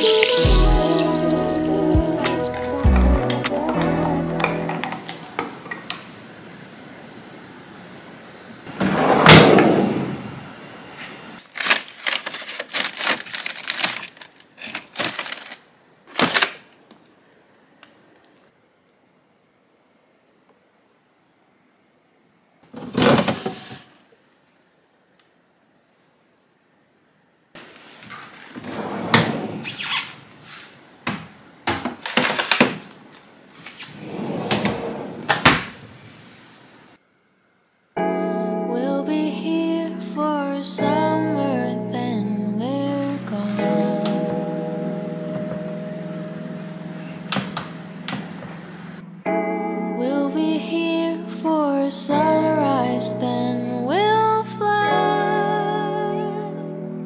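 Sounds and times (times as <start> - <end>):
paper bag crinkling: 0.0 - 1.4, 11.4 - 16.7
drawer sliding open: 8.7 - 10.3, 22.7 - 24.0, 27.8 - 30.7, 33.6 - 36.1
drawer sliding shut with thud: 8.8 - 10.2, 28.6 - 29.8, 33.9 - 35.8.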